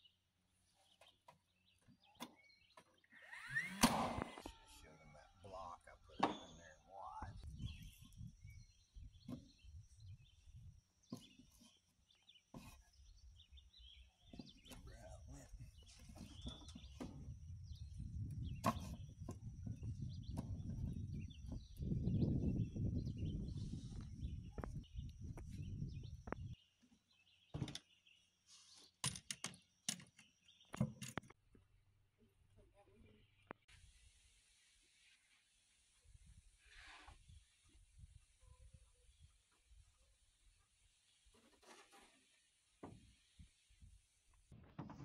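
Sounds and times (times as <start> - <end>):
faint birds chirping: 0.0 - 45.0
nail gun firing: 3.6 - 4.4.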